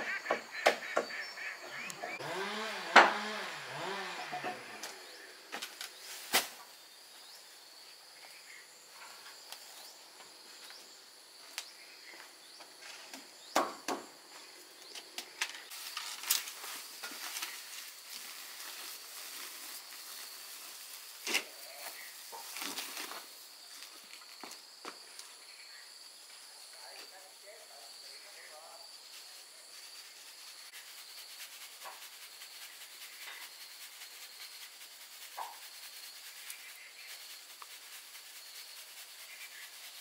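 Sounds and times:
insects chirring: 0.0s - 2.5s, 3.8s - 40.0s
sharp taps and knocks: 13.5s - 14.1s.

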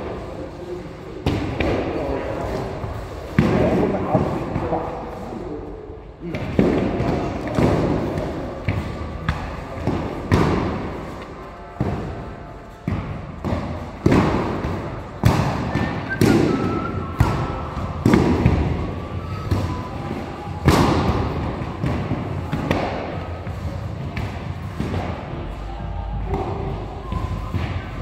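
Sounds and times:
padded swords striking shields: 6.3s - 20.0s, 20.6s - 25.3s.

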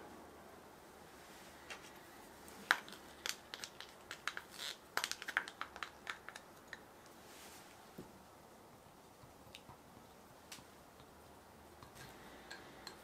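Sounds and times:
small clicks and crackles: 2.6s - 7.2s.

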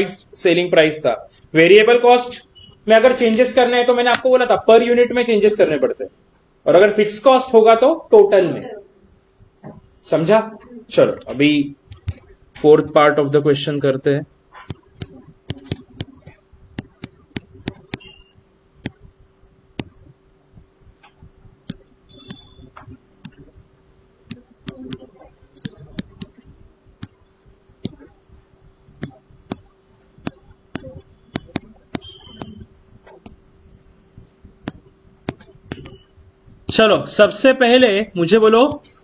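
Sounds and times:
faint steady hum: 0.0s - 39.0s
stylus tapping on pen tablet: 14.6s - 19.1s, 19.8s - 20.1s, 21.0s - 23.5s, 24.3s - 27.2s, 27.8s - 28.1s, 29.0s - 33.4s, 34.6s - 36.0s.

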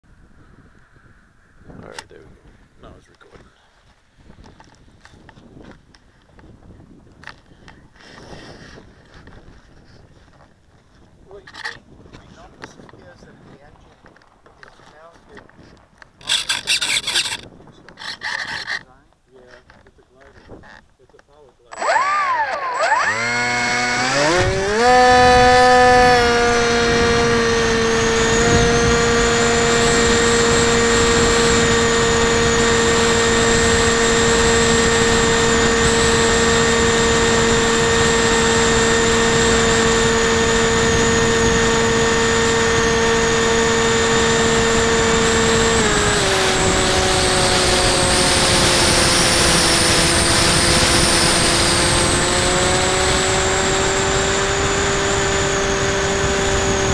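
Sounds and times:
wind noise: 0.0s - 21.1s, 23.1s - 56.9s
electric motor propeller whine: 16.2s - 19.0s, 21.7s - 56.9s.

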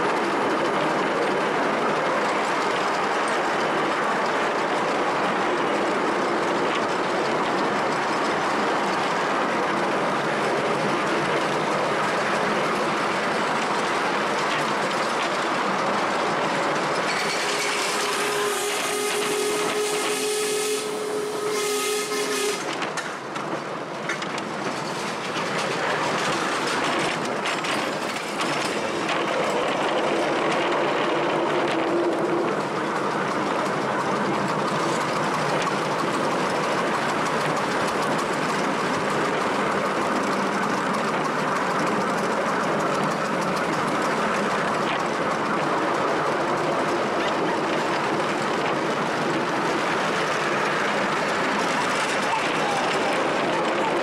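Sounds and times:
train wheels on rails: 0.0s - 54.0s
steam whistle: 17.4s - 22.7s.

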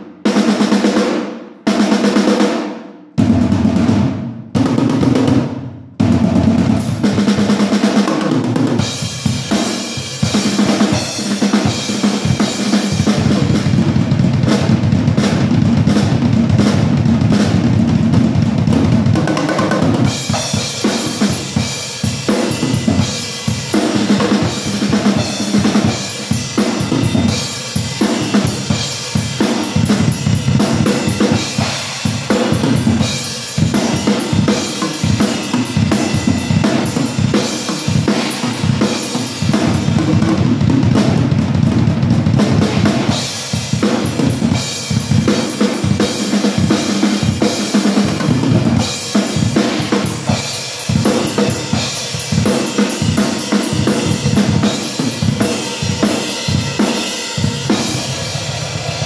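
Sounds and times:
cymbals: 8.8s - 17.7s, 19.3s - 59.0s
snare drum: 28.0s - 58.0s.

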